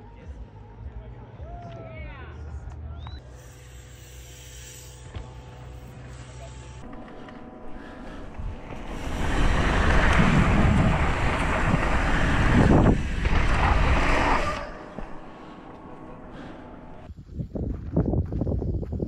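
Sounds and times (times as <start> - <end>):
bike tyres rolling over dirt: 7.8 - 19.0
wind buffeting microphone: 8.1 - 15.6, 16.3 - 19.0.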